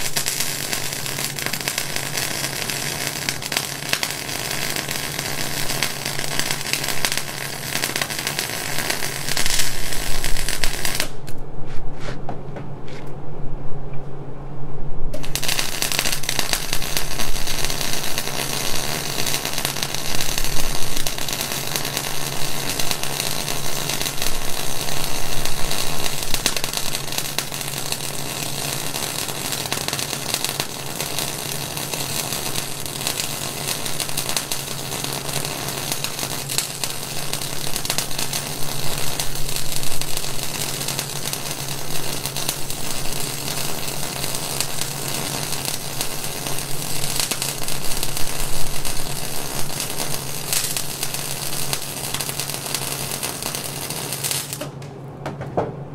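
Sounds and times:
crackling welding arc: 0.0s - 11.4s, 15.2s - 54.8s
steady low hum: 8.2s - 29.0s.

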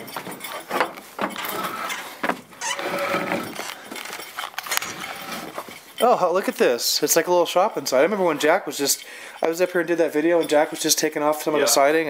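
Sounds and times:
shuffling footsteps: 0.0s - 6.2s.

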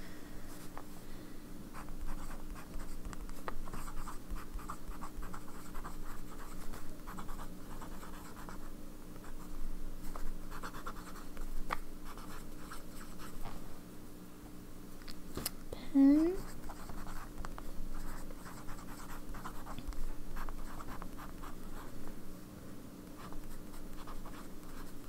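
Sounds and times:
faint low hum: 0.0s - 25.0s
fountain pen scratching on paper: 1.8s - 11.5s, 12.1s - 13.4s, 16.4s - 17.3s, 17.9s - 19.8s, 20.4s - 21.8s, 23.2s - 25.0s.

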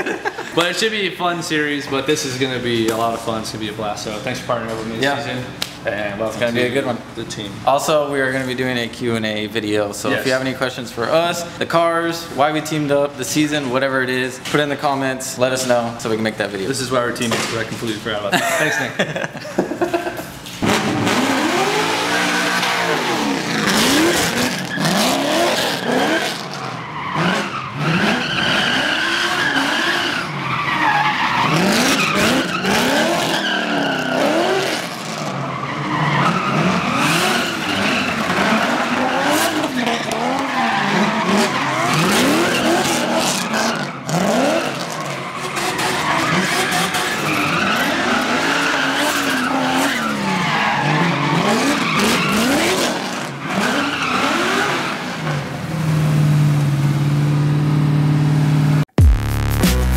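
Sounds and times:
car engine revving: 20.6s - 30.4s, 31.2s - 59.9s
tyres squealing on asphalt: 21.4s - 55.3s.

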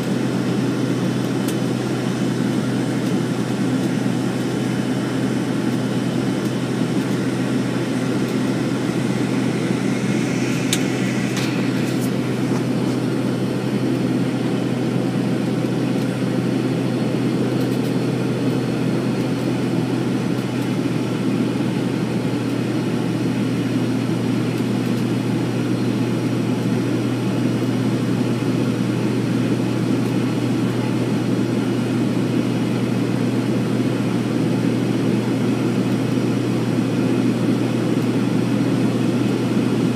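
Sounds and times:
airliner engine drone: 0.0s - 39.9s
cabin airflow rushing: 6.1s - 14.3s.

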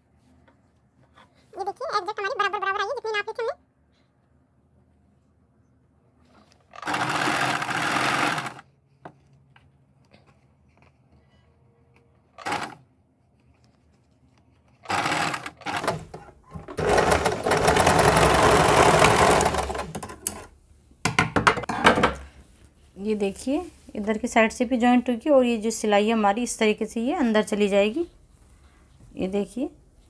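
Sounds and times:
sewing machine stitching: 6.7s - 8.7s, 12.4s - 12.8s, 14.8s - 20.5s.

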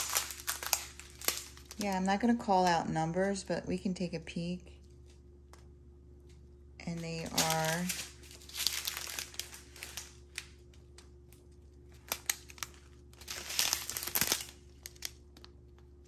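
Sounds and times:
thin plastic bags crinkling: 0.0s - 3.5s, 6.8s - 16.0s.

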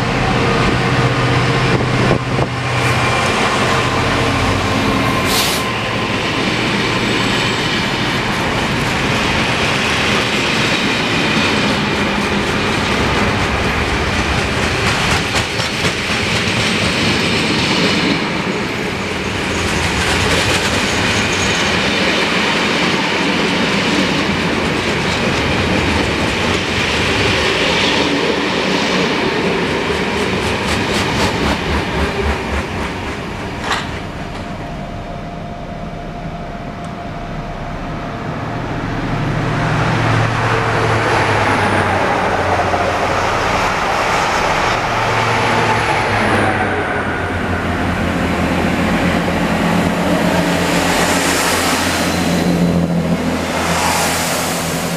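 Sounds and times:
diesel train engine: 0.0s - 54.9s
freight wagon wheels clickety-clack: 11.6s - 17.9s
faint high whine: 34.1s - 39.6s.

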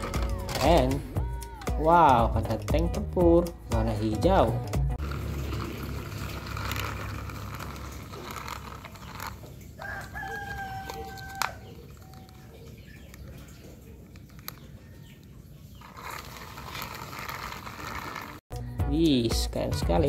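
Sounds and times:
rooster crowing: 9.8s - 12.4s.

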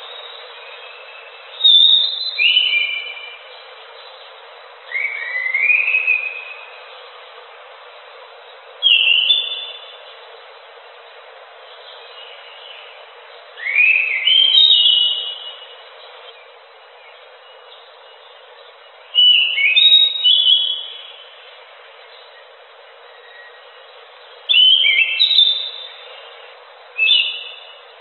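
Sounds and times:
bird whistling song: 0.0s - 3.6s, 4.9s - 6.8s, 8.8s - 10.0s, 13.6s - 18.3s, 19.1s - 21.3s, 22.2s - 23.8s, 24.4s - 27.8s
steady hiss: 0.0s - 28.0s.

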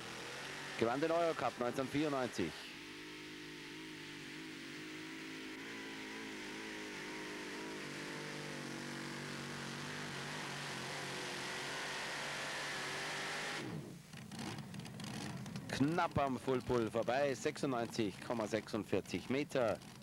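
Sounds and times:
tractor engine running under load: 0.0s - 0.6s, 13.9s - 20.0s.

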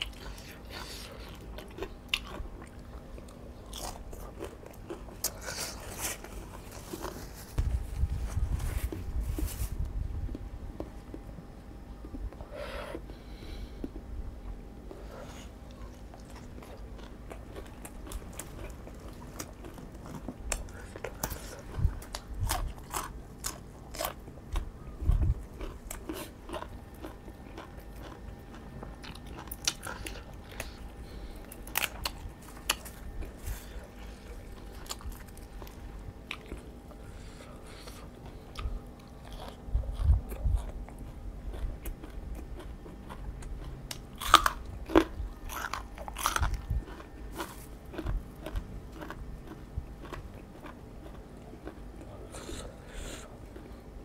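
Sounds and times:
chewing: 0.0s - 7.6s, 14.9s - 54.0s
crisp bites and crunching: 31.5s - 36.7s, 38.6s - 52.2s.

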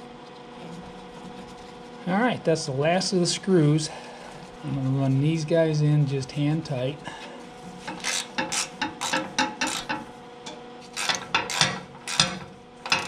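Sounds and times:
hand ratchet clicking: 7.8s - 10.0s, 10.9s - 13.0s.

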